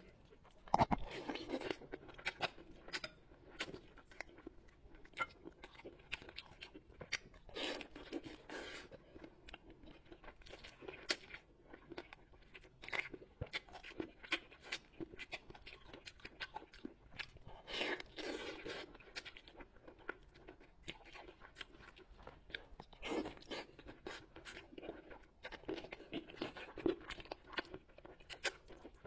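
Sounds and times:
close eating mouth clicks: 0:00.6 - 0:01.6.

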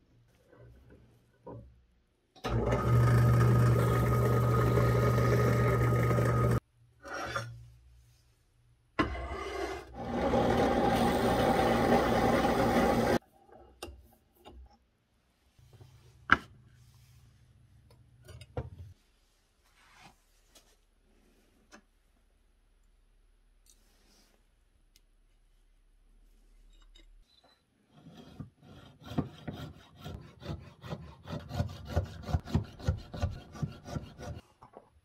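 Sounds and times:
drill press boring wood: 0:02.5 - 0:06.6, 0:10.0 - 0:13.2.

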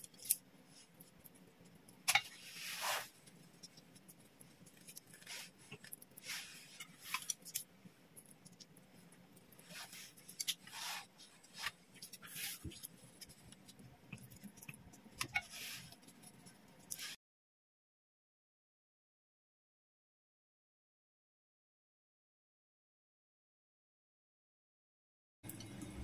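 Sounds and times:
dumpling wrappers rustling: 0:00.0 - 0:17.2.

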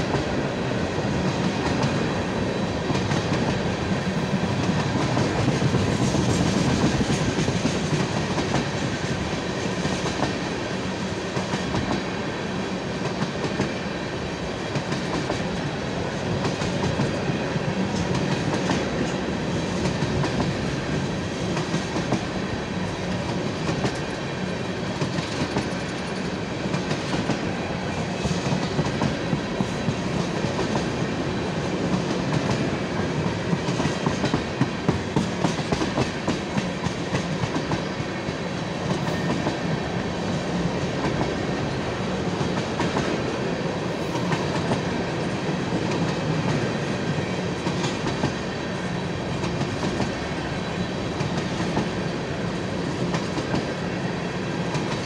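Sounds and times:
train wheels rumbling and rattling: 0:00.0 - 0:55.0.

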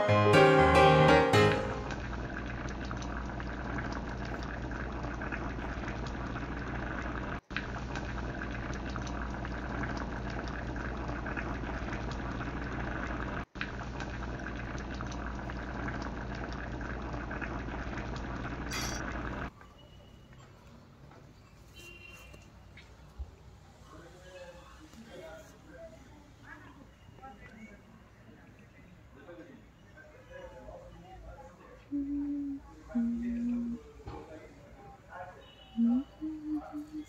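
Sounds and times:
thick gravy bubbling in a pan: 0:02.0 - 0:20.4.

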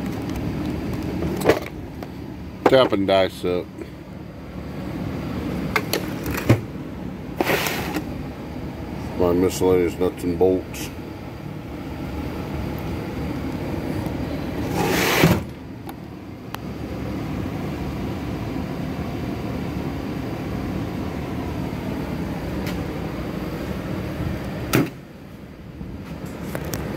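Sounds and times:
low shop hum: 0:00.0 - 0:26.9
knock or scrape: 0:07.4 - 0:08.0
tool chest drawer sliding shut: 0:07.4 - 0:08.1, 0:14.6 - 0:15.5.

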